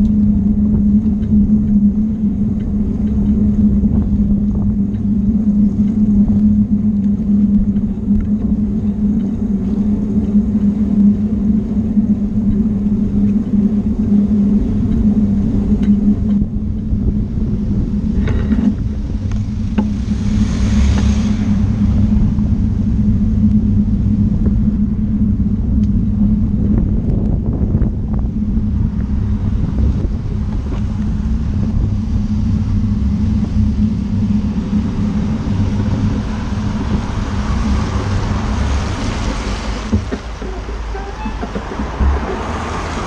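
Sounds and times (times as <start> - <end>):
wind and road rumble: 0.0 - 43.0
tyres hissing on wet road: 19.9 - 22.1, 35.7 - 43.0.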